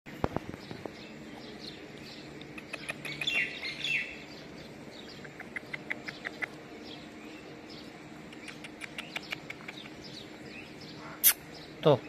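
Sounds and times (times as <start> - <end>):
loud falling bird calls: 0.1 - 11.8
small birds chirping: 0.1 - 12.0.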